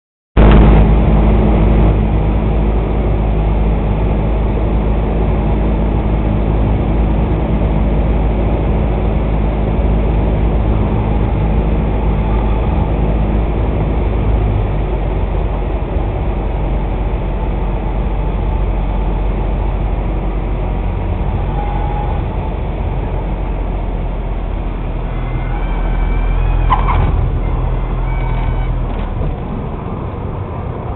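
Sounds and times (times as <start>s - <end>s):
light plane engine drone: 0.4s - 30.9s.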